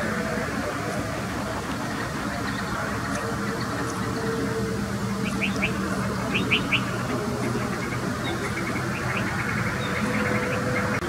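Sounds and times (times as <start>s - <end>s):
high bird chirps: 5.2s - 7.1s.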